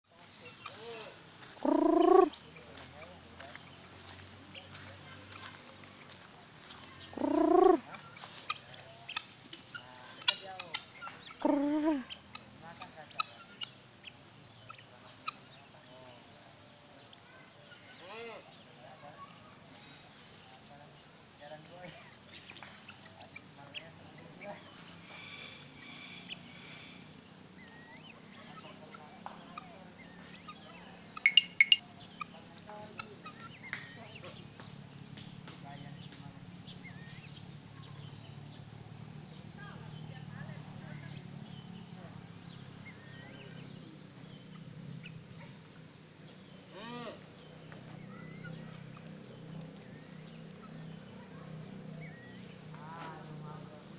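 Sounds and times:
small birds chirping: 0:00.0 - 0:53.9
loud drawn-out bird calls: 0:00.5 - 0:02.6, 0:06.9 - 0:08.0, 0:09.8 - 0:12.4, 0:24.4 - 0:28.8, 0:29.5 - 0:32.3, 0:46.5 - 0:52.8
large fowl calling harshly: 0:01.6 - 0:02.4, 0:07.1 - 0:08.4, 0:46.7 - 0:47.2
soft bird chirps and clicks: 0:31.2 - 0:31.8.

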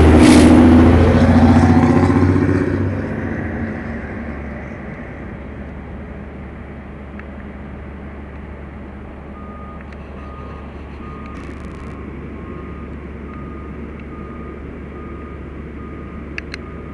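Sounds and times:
fire truck engines rumbling: 0:00.0 - 0:16.9
backup alarm beeping: 0:09.4 - 0:16.9.

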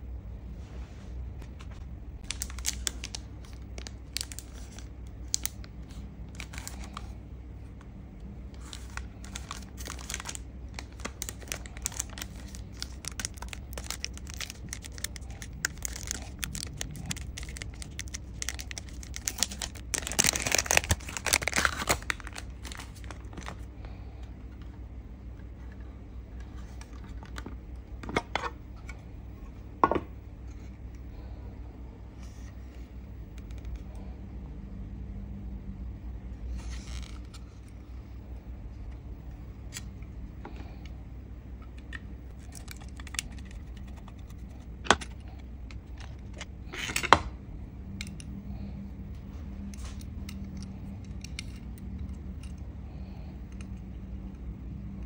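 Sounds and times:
plastic film tearing and crinkling: 0:02.2 - 0:05.6, 0:08.6 - 0:23.6.

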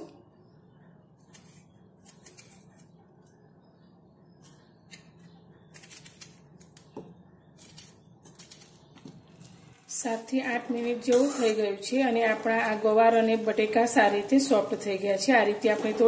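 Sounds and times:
knife cutting tomato: 0:01.2 - 0:03.4, 0:04.4 - 0:09.5.

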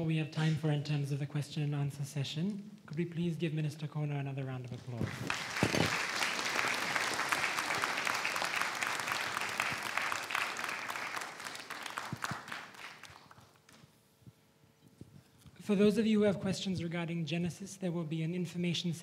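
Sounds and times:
audience applauding: 0:05.1 - 0:13.6.

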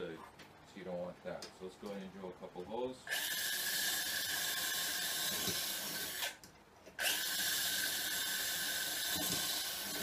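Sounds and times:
power drill whining: 0:03.1 - 0:06.4, 0:07.0 - 0:10.0.

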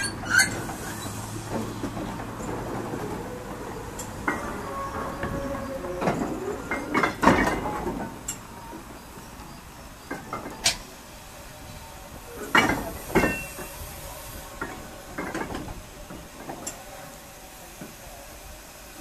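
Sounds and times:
steam hissing: 0:00.0 - 0:07.5, 0:08.1 - 0:19.0
metallic clanks of wagons: 0:00.0 - 0:10.9, 0:12.4 - 0:13.8, 0:14.6 - 0:16.8.

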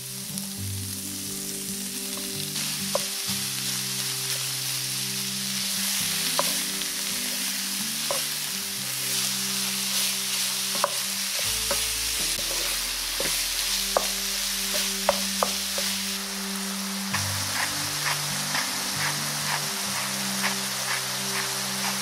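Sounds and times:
meat sizzling in oil: 0:00.0 - 0:22.0
spatula scraping pan: 0:17.2 - 0:22.0.

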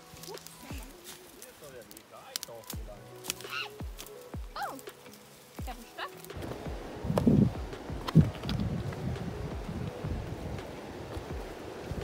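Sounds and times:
wind buffeting microphone: 0:06.4 - 0:12.0.

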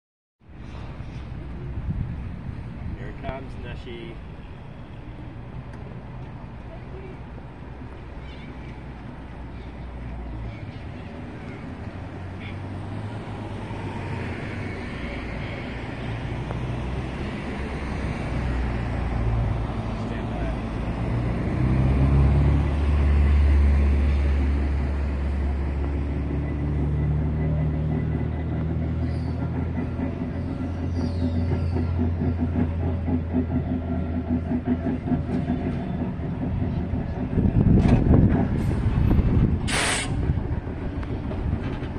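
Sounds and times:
road traffic rumble: 0:00.4 - 0:41.9
short hiss: 0:39.7 - 0:40.2.

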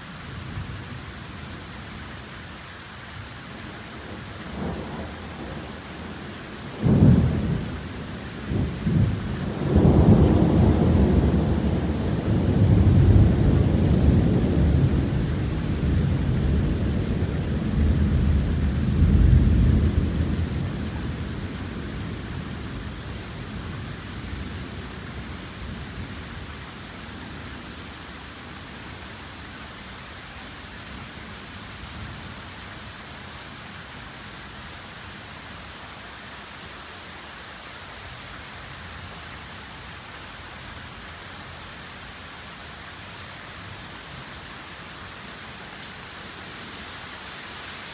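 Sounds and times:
heavy rain hissing: 0:00.0 - 0:47.9
thunder rumbling: 0:04.5 - 0:26.4.

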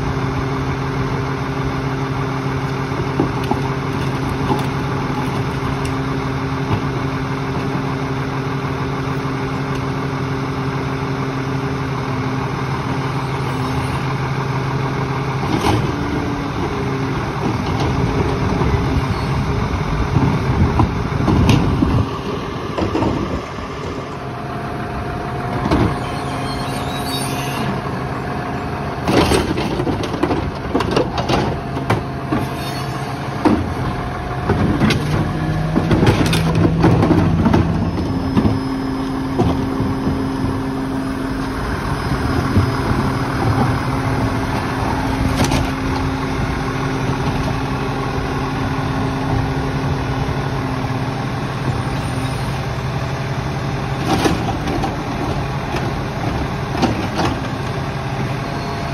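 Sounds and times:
garbage truck diesel engine: 0:00.0 - 0:58.9
steady whine: 0:15.8 - 0:52.9
metal clanks and knocks: 0:34.5 - 0:38.6.

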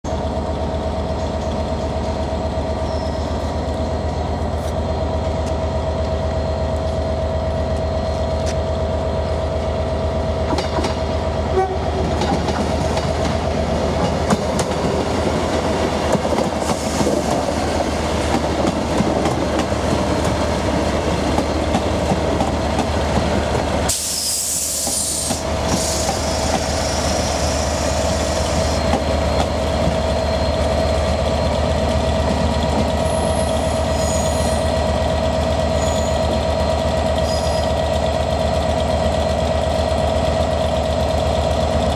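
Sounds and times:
diesel train engine drone: 0:00.0 - 0:41.9
train wheels clicking over rails: 0:12.0 - 0:30.0
loud hiss: 0:23.9 - 0:28.8.

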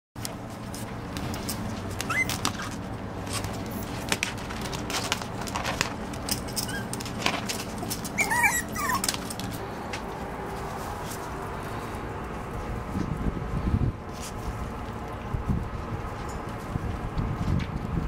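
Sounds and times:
puppies scrambling scuffles: 0:00.4 - 0:09.6
puppies whimpering and squeaking: 0:01.5 - 0:04.1, 0:06.3 - 0:09.6.

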